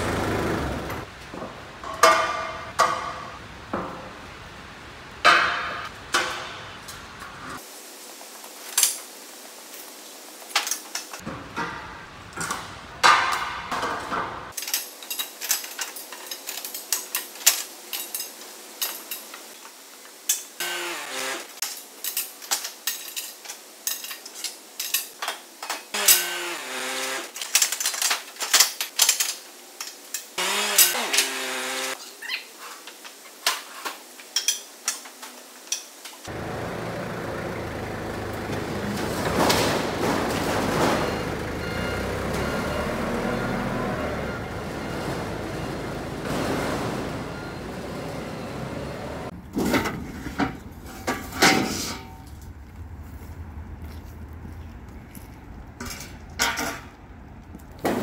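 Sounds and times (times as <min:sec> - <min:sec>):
steel tubes clattering: 0:10.5 - 0:19.7, 0:49.5 - 0:52.4
metal sliding squeal: 0:40.3 - 0:49.2.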